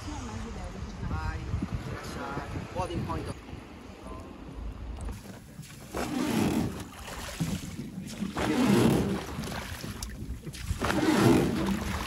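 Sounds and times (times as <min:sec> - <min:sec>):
wind rumbling on microphone: 0:00.0 - 0:12.0
water splashing around boat: 0:04.8 - 0:12.0.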